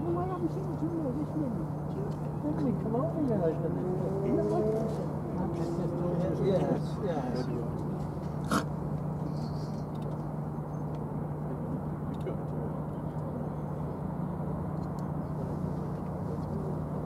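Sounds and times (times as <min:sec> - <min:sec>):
distant machinery and traffic hum: 0:00.0 - 0:17.0.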